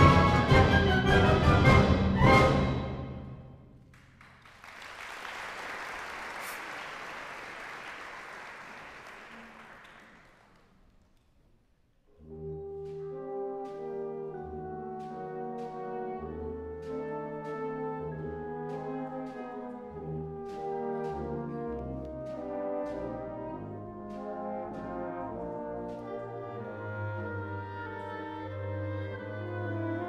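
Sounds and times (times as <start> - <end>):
brass sustained chords: 12.1 - 30.0.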